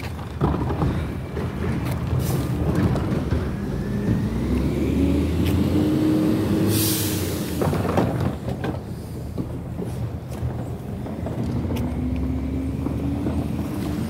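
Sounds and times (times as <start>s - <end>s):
diesel engine rumbling: 0.0s - 14.0s
air brake hiss: 6.5s - 7.7s.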